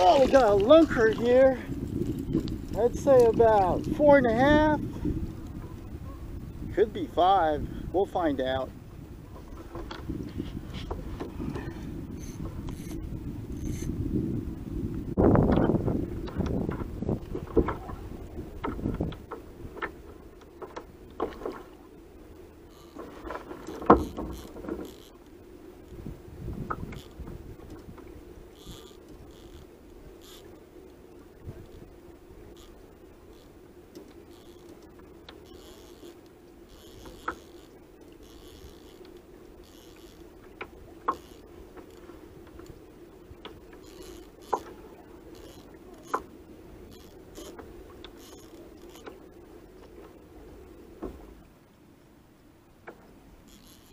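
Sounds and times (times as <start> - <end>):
fishing reel clicks: 34.2 - 40.3, 41.1 - 42.0, 43.8 - 44.6, 45.3 - 46.2, 53.5 - 53.9.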